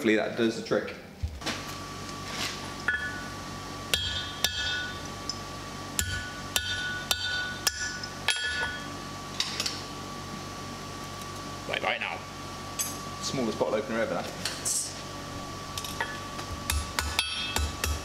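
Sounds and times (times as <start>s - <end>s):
hammer striking metal on anvil: 2.9s - 3.3s, 3.9s - 5.0s, 6.0s - 8.9s, 16.0s - 18.0s.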